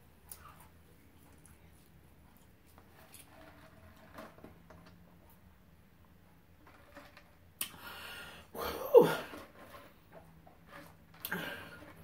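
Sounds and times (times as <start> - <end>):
heavy breaths out: 7.7 - 9.5, 11.2 - 12.0.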